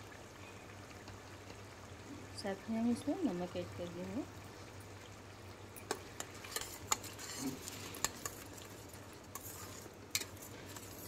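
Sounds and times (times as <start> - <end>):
paste sizzling: 5.9 - 11.0
spatula scraping metal pot: 6.2 - 11.0.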